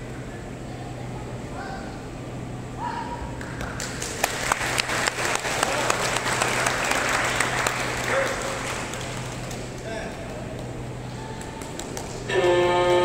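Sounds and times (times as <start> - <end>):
spectators applauding: 3.4 - 12.3.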